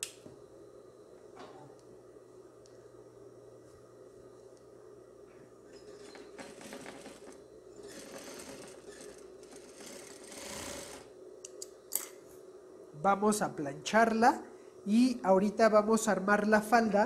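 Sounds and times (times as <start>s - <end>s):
sewing machine running: 5.9s - 11.1s.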